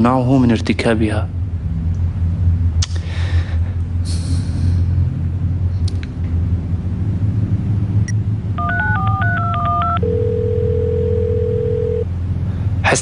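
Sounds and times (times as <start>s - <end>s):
phone keypad dial tone beeps: 8.6s - 12.1s
steady phone tone: 8.6s - 12.1s.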